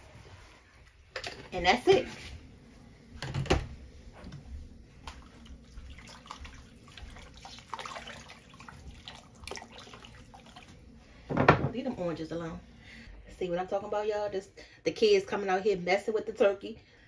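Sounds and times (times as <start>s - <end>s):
liquid sloshing in a pot: 5.0s - 11.3s.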